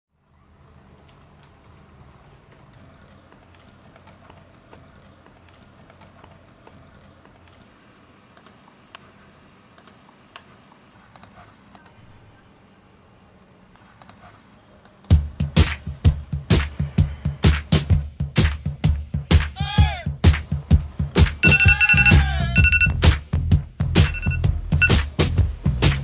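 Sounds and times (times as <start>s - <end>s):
laptop keyboard typing: 1.0s - 7.7s, 21.4s - 22.9s
low steady hum: 20.5s - 25.8s.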